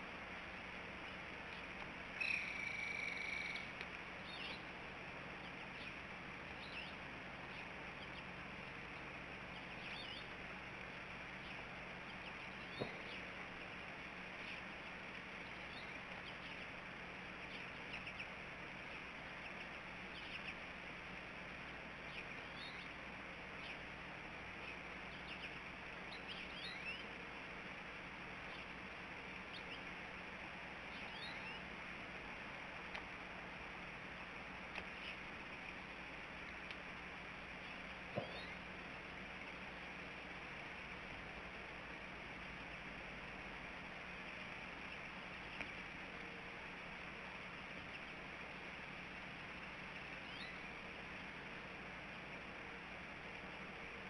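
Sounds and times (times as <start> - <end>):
small birds chirping: 0.0 - 54.0
steady outdoor hiss: 0.0 - 54.0
high bird call: 2.2 - 4.6.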